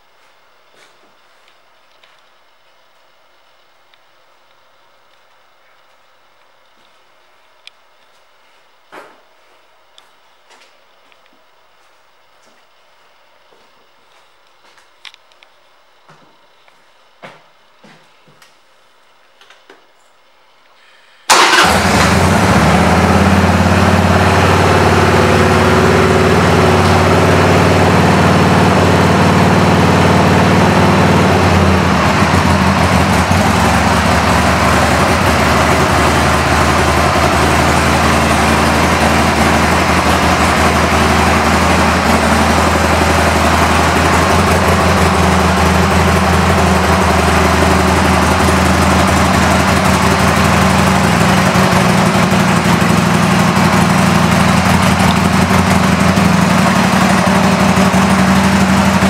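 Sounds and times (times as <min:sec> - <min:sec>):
motorcycle engine running: 0:21.4 - 0:59.0.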